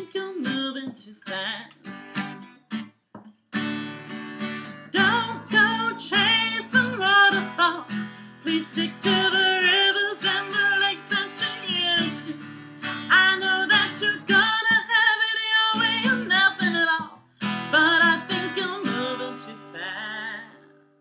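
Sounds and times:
woman singing: 0:00.0 - 0:02.2, 0:05.0 - 0:20.8
strummed acoustic guitar: 0:00.0 - 0:20.9.

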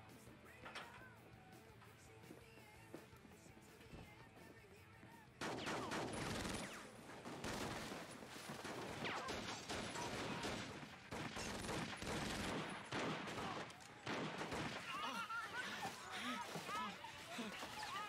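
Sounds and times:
rapid gunfire volley: 0:05.1 - 0:18.0.

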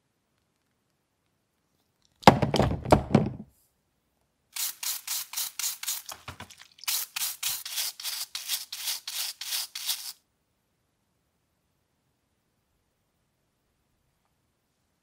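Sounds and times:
brush scrubbing rubber wheel: 0:04.6 - 0:10.2.

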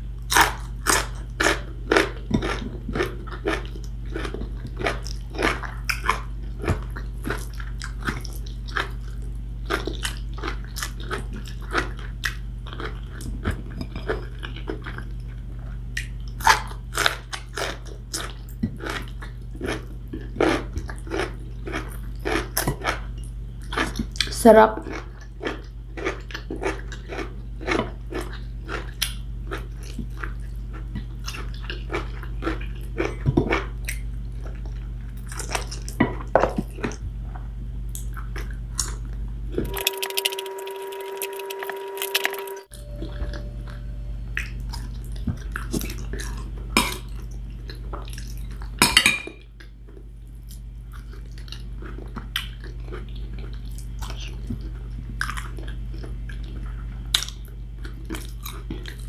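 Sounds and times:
chewing: 0:00.3 - 0:37.0, 0:44.4 - 0:48.8, 0:49.6 - 0:59.0
low hum: 0:37.0 - 0:49.3
steady tone: 0:39.6 - 0:45.1.

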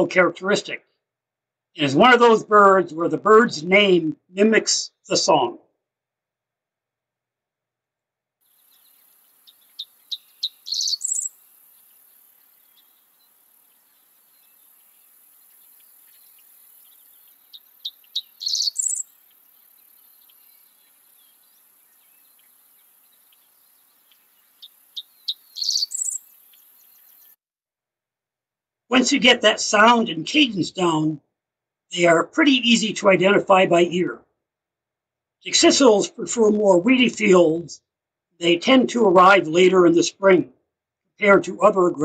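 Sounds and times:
bird song: 0:08.5 - 0:27.4
faint high hiss: 0:08.5 - 0:27.4.

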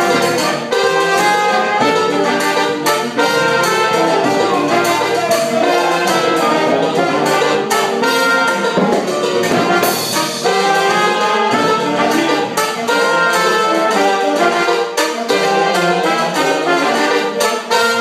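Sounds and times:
sharp percussion hits: 0:00.0 - 0:14.2
brass section playing: 0:00.0 - 0:18.0
trumpet playing: 0:00.0 - 0:18.0.

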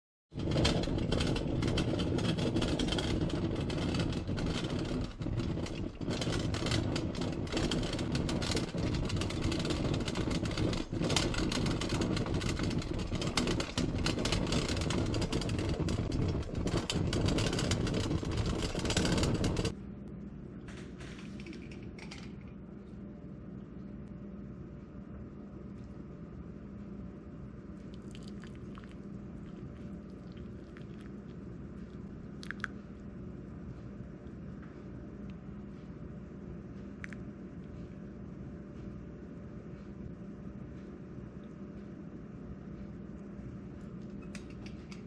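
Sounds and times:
coffee percolator perking: 0:27.9 - 0:32.7.

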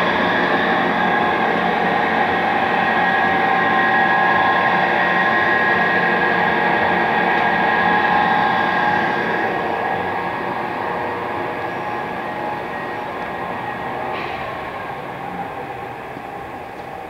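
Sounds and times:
lathe running with whine: 0:00.0 - 0:17.0.

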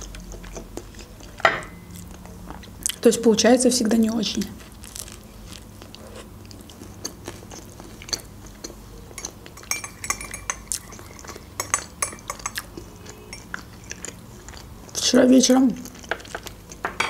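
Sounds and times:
biting and chewing: 0:00.0 - 0:03.0, 0:04.6 - 0:09.6, 0:10.6 - 0:15.0
spoon clinking in glass mug: 0:09.2 - 0:10.7.

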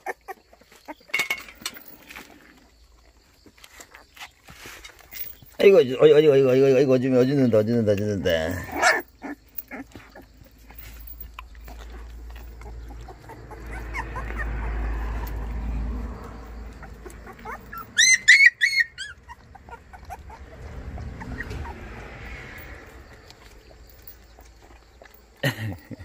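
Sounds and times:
puppy whining: 0:00.0 - 0:05.7, 0:06.9 - 0:26.0
puppy squeaking: 0:08.4 - 0:15.5, 0:16.6 - 0:21.8.

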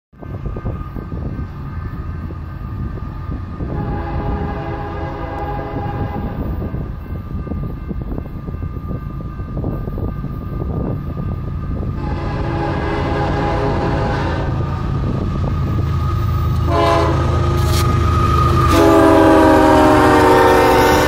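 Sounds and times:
locomotive rumble: 0:00.2 - 0:21.0
train air horn blasts: 0:03.6 - 0:06.6, 0:12.0 - 0:14.8, 0:16.6 - 0:21.0.

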